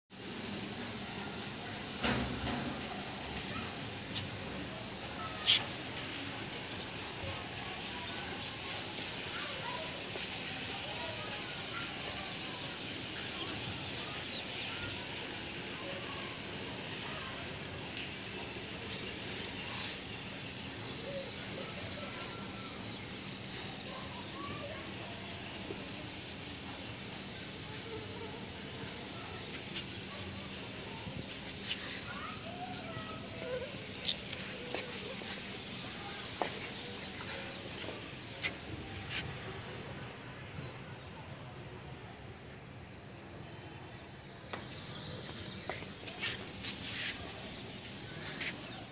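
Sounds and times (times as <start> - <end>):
outdoor background hiss: 0.1 - 48.9.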